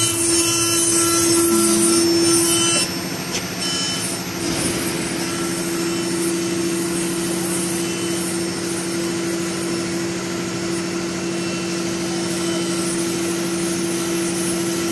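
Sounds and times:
router spindle humming: 0.0s - 6.1s.

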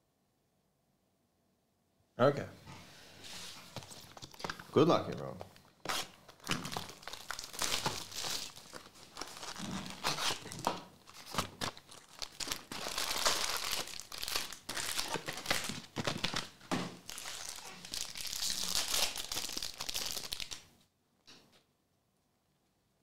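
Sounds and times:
card pack wrappers crinkling and ripping: 3.7s - 4.8s, 5.4s - 20.7s.

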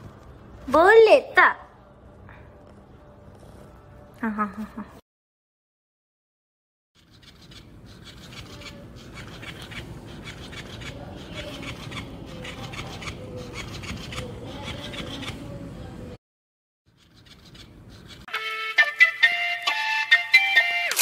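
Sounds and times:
cat claws scraping fabric: 7.0s - 15.4s, 16.9s - 18.3s.

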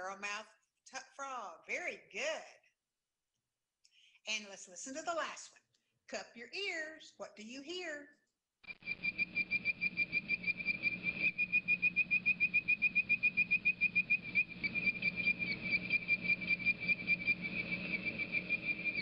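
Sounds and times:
frog whistled tweet calls: 8.7s - 19.0s.

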